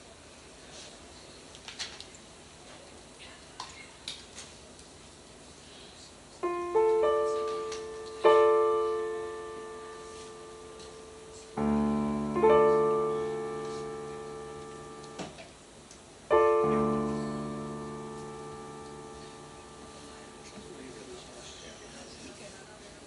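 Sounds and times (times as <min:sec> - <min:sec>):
piano chords ringing: 0:06.4 - 0:21.8.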